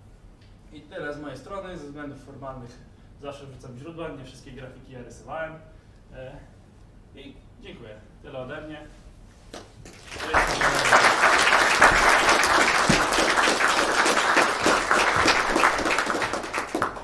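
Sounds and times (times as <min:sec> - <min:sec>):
audience applauding: 0:09.9 - 0:17.0.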